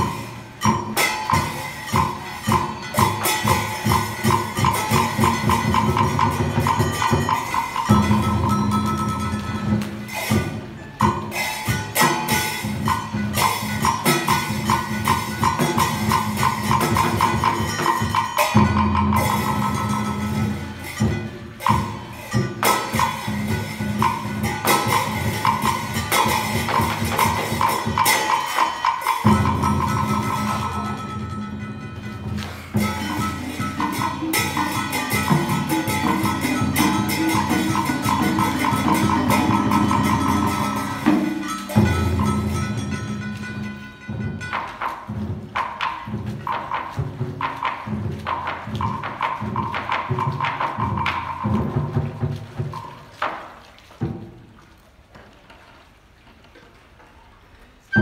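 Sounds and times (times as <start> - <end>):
jangly strikes: 0.0 - 46.2
drum beats: 0.0 - 55.5
theatre percussion music: 0.0 - 56.9, 57.7 - 58.0.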